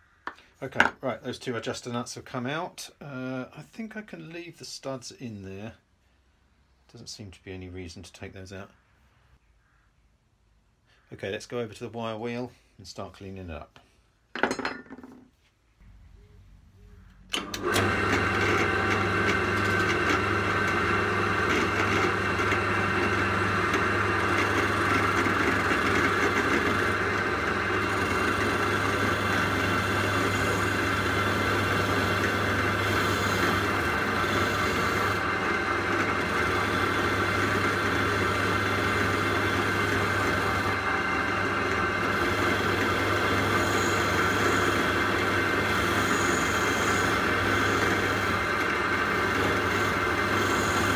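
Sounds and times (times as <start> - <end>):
drill motor hum: 17.0 - 50.9
wire wheel brushing paint off metal: 17.6 - 50.9.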